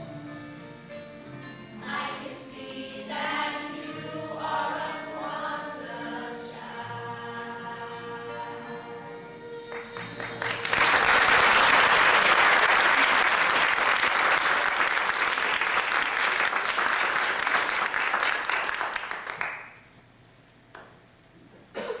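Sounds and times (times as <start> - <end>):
music held chord: 0.0 - 11.6
audience applauding: 9.7 - 19.8.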